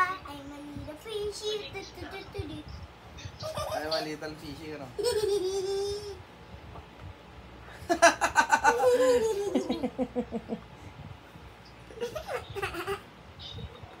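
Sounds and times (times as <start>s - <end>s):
girl giggling: 5.0s - 6.2s, 7.9s - 10.6s, 11.9s - 13.1s.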